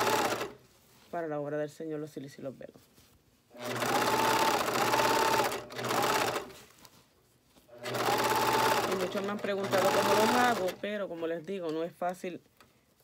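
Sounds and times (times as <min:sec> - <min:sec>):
sewing machine stitching: 0:00.0 - 0:00.6, 0:03.6 - 0:06.6, 0:07.7 - 0:11.0.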